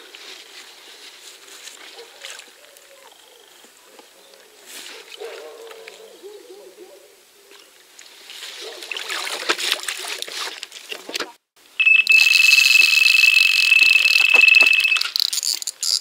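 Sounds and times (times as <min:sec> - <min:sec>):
water splashing: 0:08.8 - 0:11.0
electronic bite alarm tone: 0:11.8 - 0:15.1.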